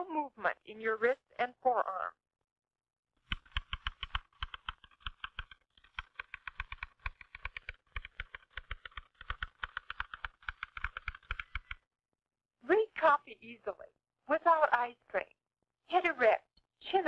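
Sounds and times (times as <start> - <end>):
typewriter keys clacking: 3.3 - 11.8.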